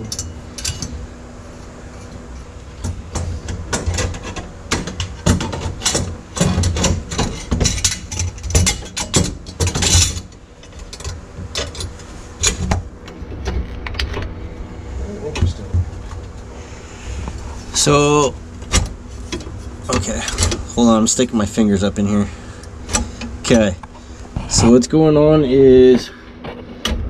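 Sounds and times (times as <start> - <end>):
metal bracket clanking: 0.0 - 1.1, 1.9 - 14.3, 17.9 - 21.2.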